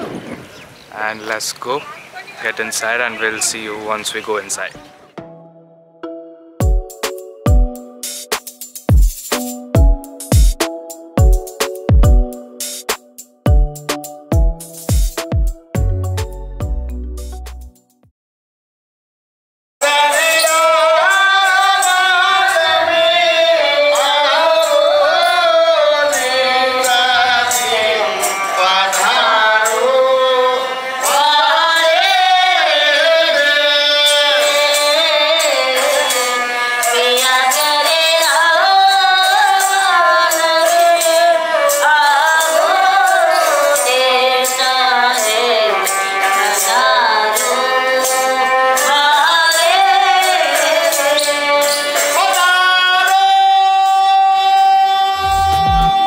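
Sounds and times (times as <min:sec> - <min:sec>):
person singing: 0:19.8 - 0:56.0
bowed fiddle folk melody: 0:53.7 - 0:56.0.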